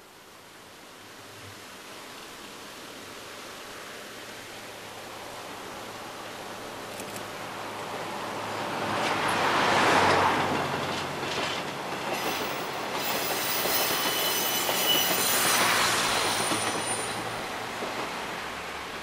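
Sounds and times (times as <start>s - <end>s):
diesel railcar passing: 7.4s - 19.0s
wheels squealing: 12.2s - 17.3s.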